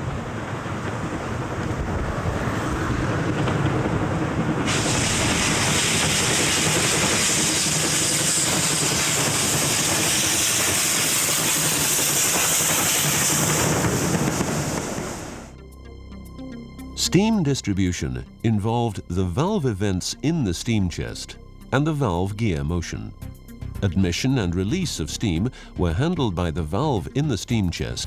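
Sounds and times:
coaches rumbling over rails: 0.0 - 15.5
steam locomotive rumble: 0.0 - 15.6
steam hissing: 4.4 - 15.5.

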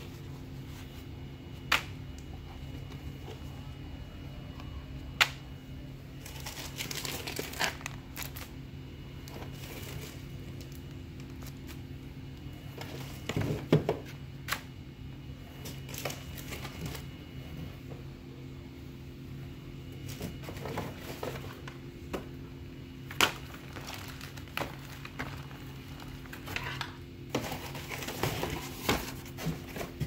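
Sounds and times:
plastic and cardboard crinkling: 6.1 - 14.5, 15.6 - 17.4, 19.9 - 30.0.

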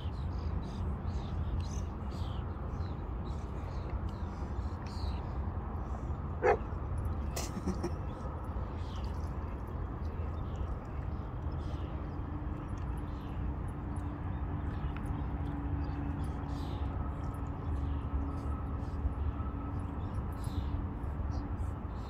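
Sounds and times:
dog yelping: 6.4 - 6.6.

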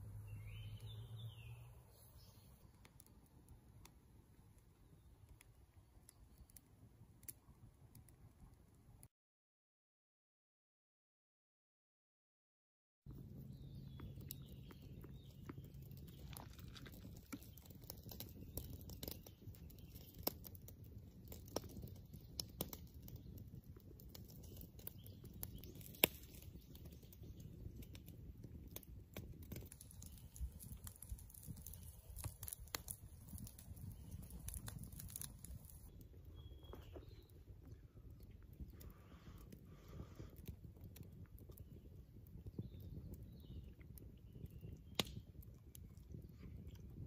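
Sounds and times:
campfire crackling and popping: 0.0 - 9.1, 13.1 - 47.0
faint bird chirps: 0.2 - 2.6, 35.9 - 38.0.

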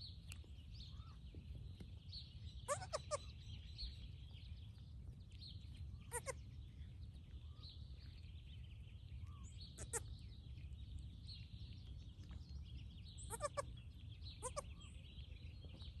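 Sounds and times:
goat kid bleating: 2.7 - 3.3, 6.1 - 6.4, 9.8 - 10.1, 13.3 - 13.7, 14.4 - 14.7.

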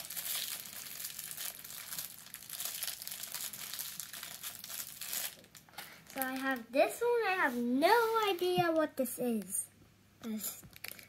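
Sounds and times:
plastic wrapper crinkling: 0.0 - 6.7, 10.6 - 11.0.

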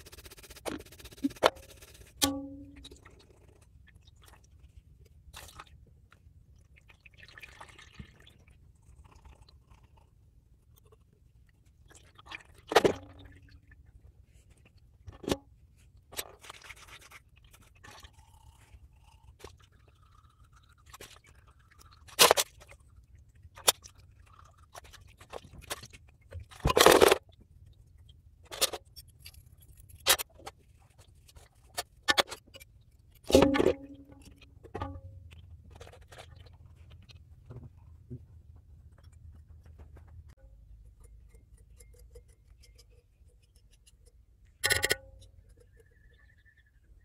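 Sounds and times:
liquid sloshing in a basin: 0.4 - 47.0
metal knocking and clinking: 44.6 - 45.6.

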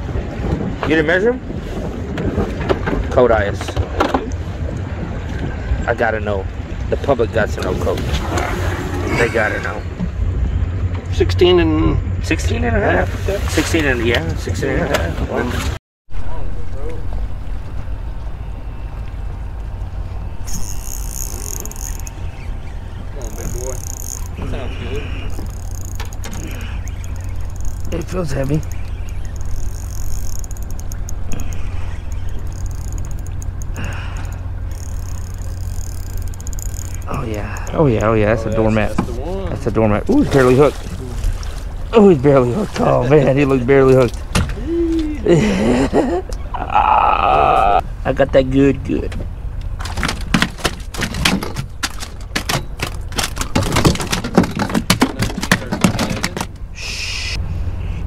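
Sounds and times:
low rumble: 14.2 - 42.4
fishing reel clicking: 20.4 - 24.6, 25.2 - 38.2
net frame clattering on hull: 23.0 - 44.6, 49.1 - 56.7
fish flopping and slapping: 49.7 - 56.6.

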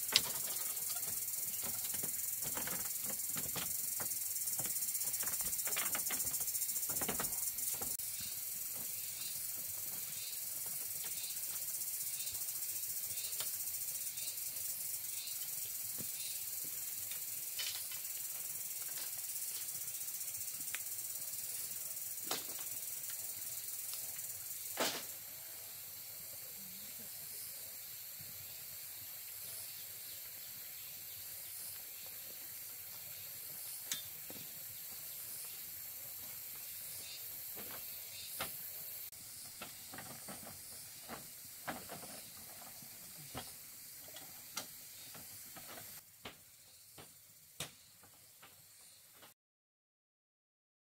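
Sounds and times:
insects hissing: 0.0 - 49.3.

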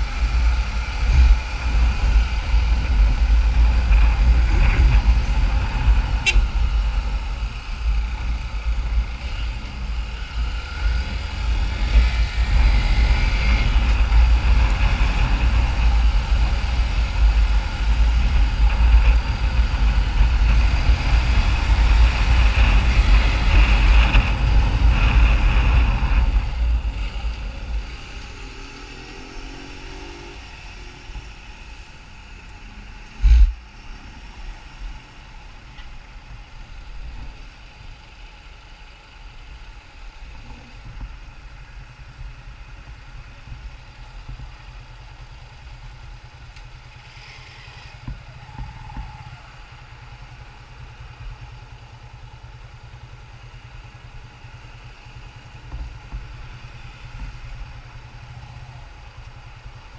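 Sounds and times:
wind noise on microphone: 0.0 - 28.4, 33.1 - 33.7
motorcycle engine idling: 30.6 - 59.9.

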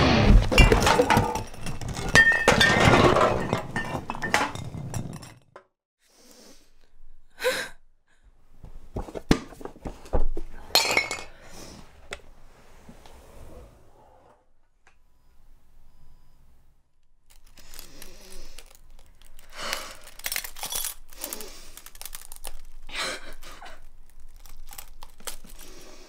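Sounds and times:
things crashing and breaking: 0.0 - 5.4.

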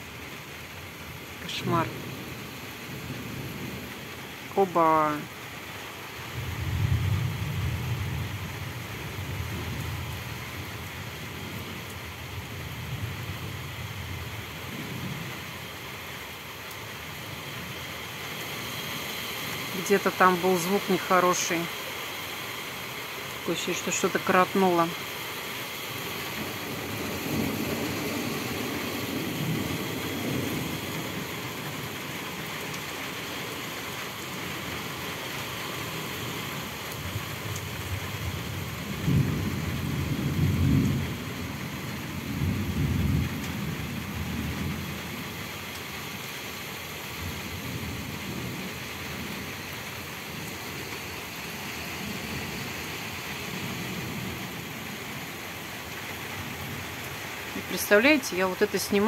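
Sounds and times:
rain hissing: 0.0 - 59.0
thunder rumbling: 6.3 - 15.5, 26.3 - 31.9, 37.0 - 45.4.

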